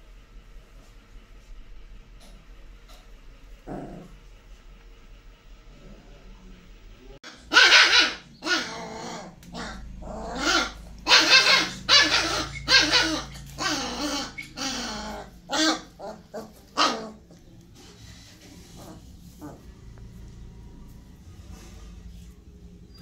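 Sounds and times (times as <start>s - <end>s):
puppies barking and growling: 7.3s - 23.0s.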